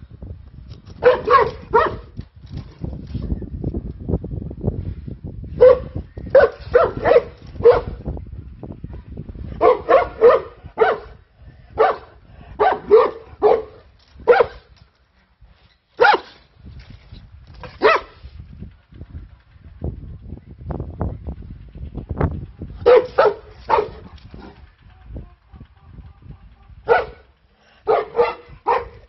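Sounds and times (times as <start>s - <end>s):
dog barking deeply: 1.0s - 2.2s, 5.6s - 8.0s, 9.6s - 14.6s, 16.0s - 16.3s, 17.8s - 18.2s, 22.8s - 24.6s, 26.1s - 29.0s.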